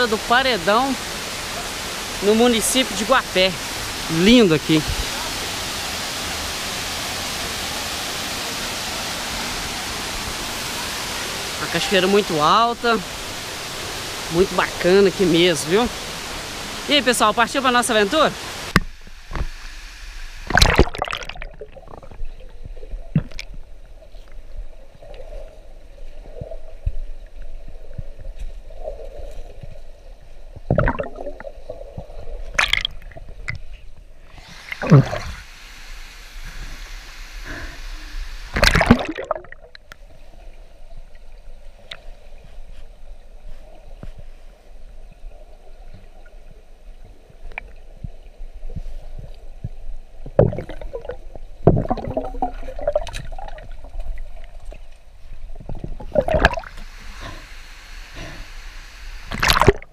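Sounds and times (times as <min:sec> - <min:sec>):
muffled underwater river rush: 0:00.0 - 0:59.9
water splashing: 0:09.3 - 0:24.3, 0:30.6 - 0:35.5, 0:38.5 - 0:40.1, 0:50.2 - 0:58.5, 0:59.1 - 0:59.9.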